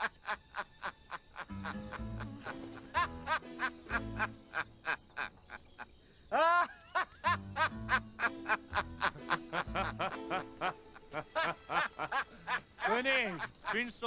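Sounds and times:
man laughing heartily: 0:00.0 - 0:13.9
lively music: 0:01.3 - 0:04.8, 0:07.2 - 0:14.0.

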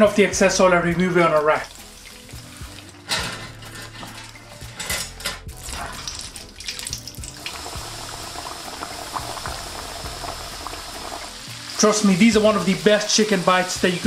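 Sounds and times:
frying sizzle: 0:01.3 - 0:04.8, 0:05.4 - 0:14.0
metal sieve clinking against wok: 0:03.0 - 0:06.3.

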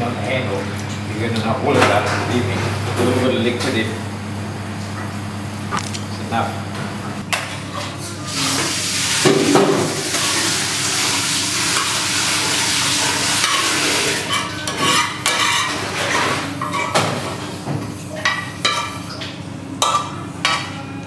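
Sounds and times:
pasta sizzling in frying pan: 0:08.2 - 0:14.6
utensil scraping pan: 0:11.6 - 0:17.0.

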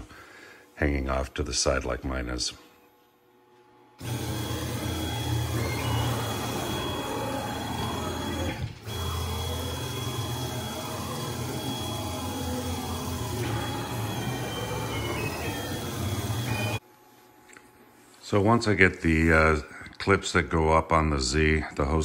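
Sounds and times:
thin high whine: 0:00.0 - 0:17.4
stepper motors whirring: 0:04.0 - 0:16.8.

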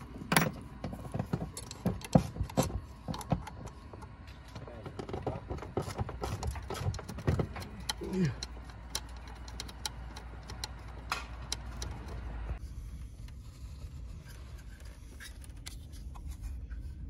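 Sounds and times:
ratchet clicking on bolts: 0:05.8 - 0:12.2.

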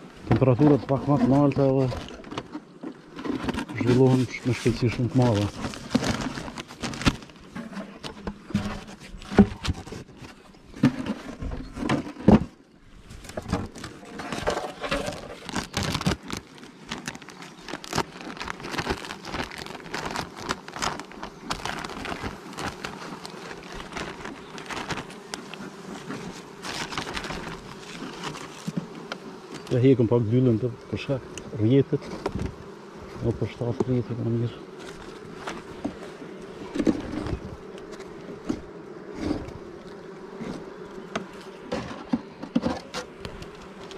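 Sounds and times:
honeybees buzzing: 0:00.0 - 0:43.9
plastic sheet crinkling: 0:03.3 - 0:07.6, 0:13.2 - 0:28.9
wooden hive boxes knocking: 0:13.3 - 0:34.1, 0:34.7 - 0:43.9.

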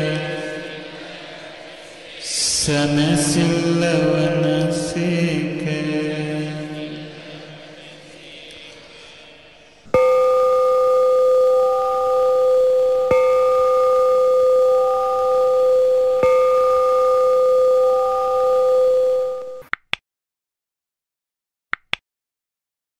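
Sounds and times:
metal bowl bell ringing: 0:09.9 - 0:19.6.

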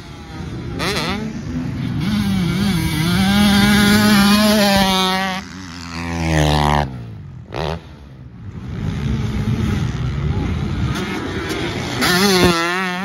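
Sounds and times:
motocross bike engine revving: 0:00.0 - 0:13.0.

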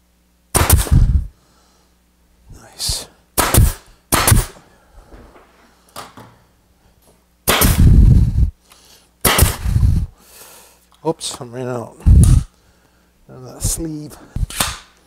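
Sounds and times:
pneumatic nailer shots: 0:00.5 - 0:01.2, 0:03.4 - 0:04.6, 0:07.4 - 0:08.2, 0:09.2 - 0:10.1, 0:14.4 - 0:14.9
burst of air: 0:00.6 - 0:01.3, 0:03.4 - 0:04.6, 0:07.5 - 0:08.5, 0:09.2 - 0:10.2.

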